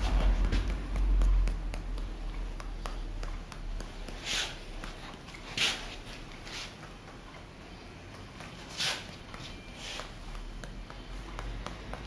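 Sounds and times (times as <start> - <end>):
light taps and clicks: 0.0 - 12.0
cloth swish: 4.0 - 4.8, 5.4 - 6.8, 8.6 - 9.2.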